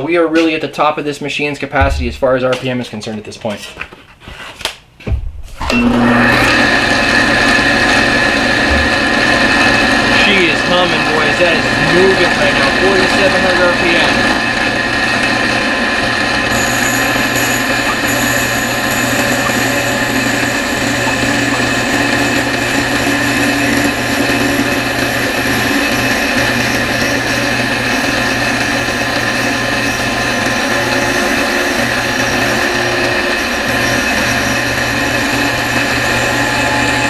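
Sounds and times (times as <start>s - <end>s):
drill press humming: 5.5s - 37.0s
end mill cutting wood: 5.6s - 37.0s.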